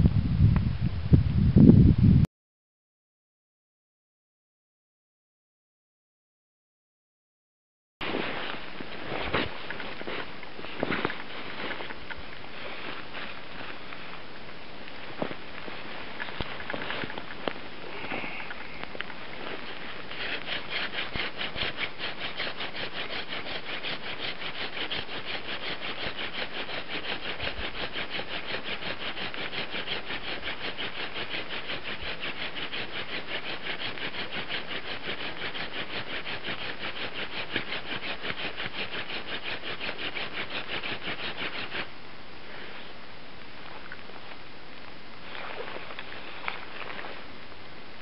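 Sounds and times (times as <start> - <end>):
wooden spindle rasping on wood: 19.4 - 41.9.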